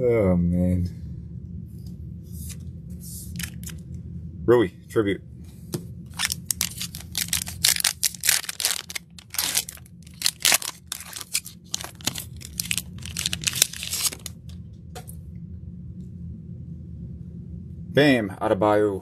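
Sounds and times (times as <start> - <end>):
plastic wrapper tearing and crinkling: 3.4 - 3.8, 6.1 - 14.4.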